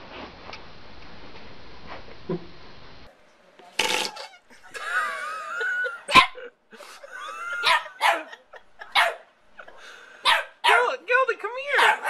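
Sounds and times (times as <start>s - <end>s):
dog barking: 6.1s - 6.4s, 7.6s - 9.3s, 10.2s - 10.9s, 11.8s - 12.0s.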